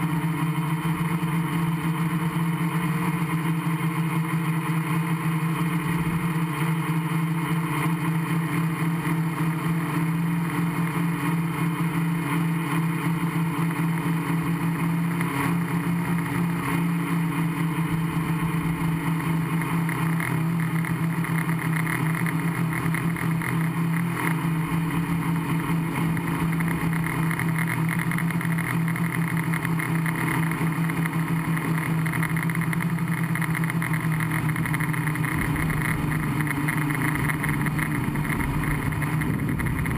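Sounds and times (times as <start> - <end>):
drone motors buzzing hum: 0.0 - 39.9
propeller rushing noise: 17.3 - 39.9.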